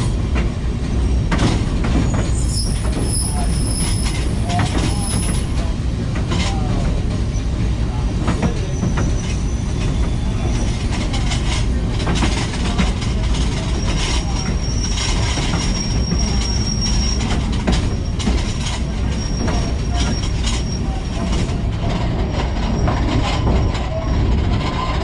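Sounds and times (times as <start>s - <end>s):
train wheels rumbling on rail: 0.0s - 25.0s
high wheel squeal: 2.0s - 5.6s, 8.6s - 10.8s, 13.6s - 18.3s.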